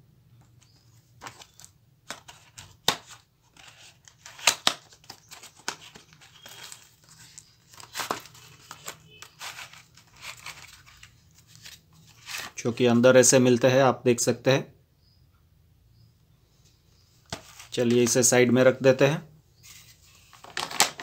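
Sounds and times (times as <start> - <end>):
plastic wrap crinkling: 4.4 - 12.5.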